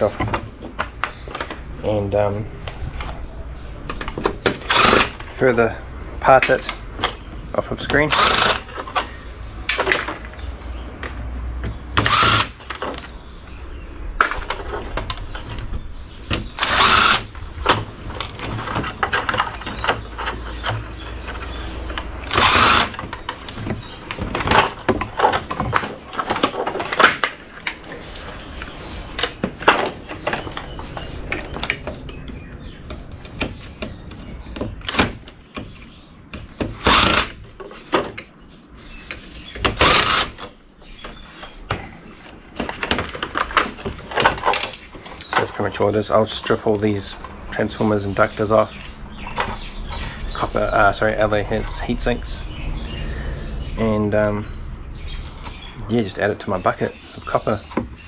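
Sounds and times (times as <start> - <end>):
cordless drill running: 8.1 - 8.6, 12.0 - 12.6, 16.6 - 17.3, 22.3 - 23.0, 36.9 - 37.3.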